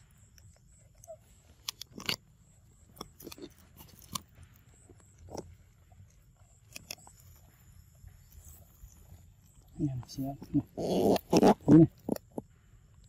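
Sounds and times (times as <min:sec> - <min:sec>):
monkey chewing snack: 0:00.0 - 0:12.6.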